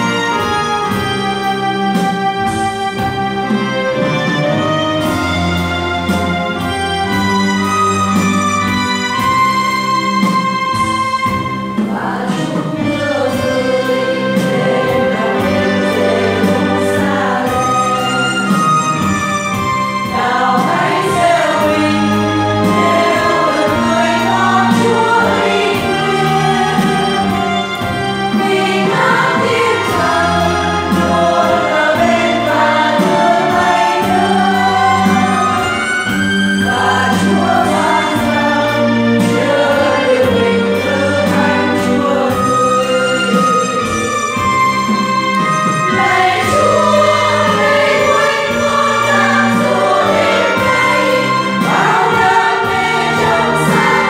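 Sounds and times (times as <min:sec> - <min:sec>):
women's choir singing a hymn: 0:11.7 - 0:44.7, 0:45.4 - 0:54.0.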